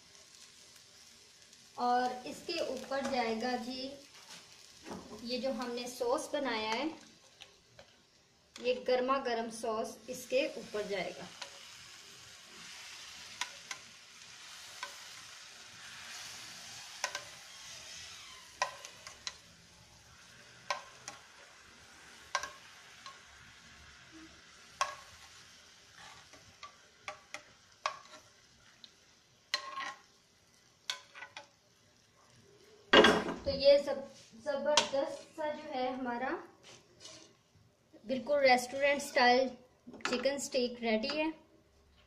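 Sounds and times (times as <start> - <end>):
sauce sizzling in pan: 0.0 - 41.1.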